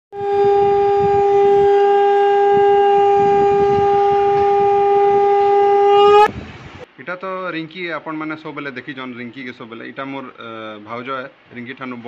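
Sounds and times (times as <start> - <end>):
conch shell blown: 0.1 - 6.3.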